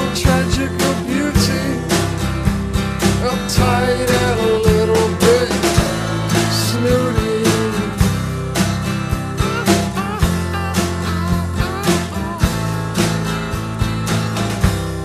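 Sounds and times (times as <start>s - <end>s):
guitar: 0.0s - 15.0s
steady beat: 0.0s - 15.0s.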